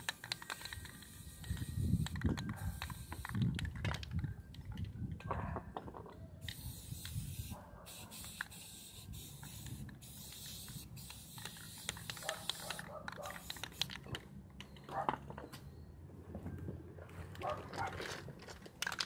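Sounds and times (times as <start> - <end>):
spray paint can hissing: 0.0 - 3.8, 6.4 - 14.0.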